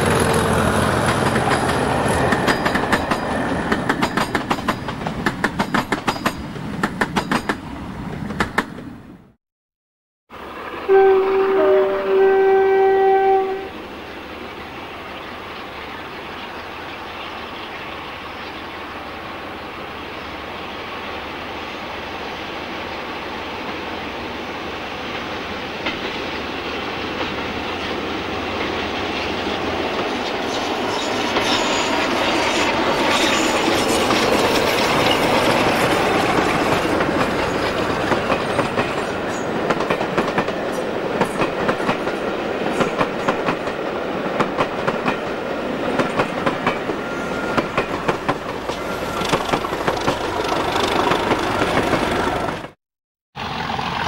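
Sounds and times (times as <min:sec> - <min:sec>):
train wheels clattering over rail joints: 0:00.0 - 0:07.6, 0:31.0 - 0:52.8
diesel locomotive engine: 0:00.0 - 0:09.4, 0:10.3 - 0:52.8, 0:53.4 - 0:54.0.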